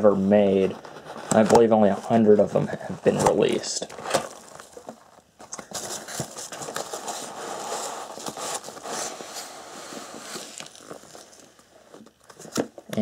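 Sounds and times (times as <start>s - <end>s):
packing peanuts rustling: 3.0s - 12.2s.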